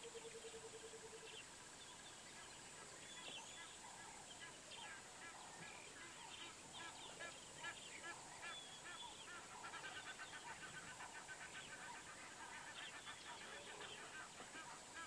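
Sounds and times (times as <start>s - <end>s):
goose honking: 6.0s - 15.0s.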